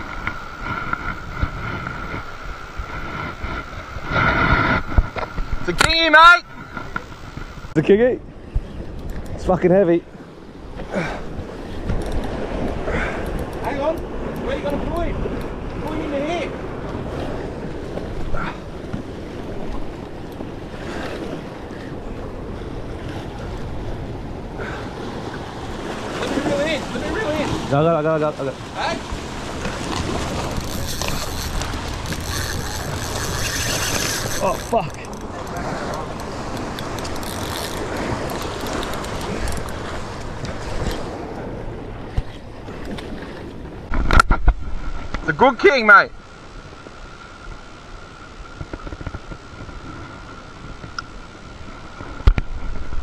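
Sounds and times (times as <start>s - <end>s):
wind buffeting microphone: 0.0s - 45.2s
ocean swell washing over rocks: 9.6s - 53.0s
small waves washing over rocks: 24.8s - 41.4s.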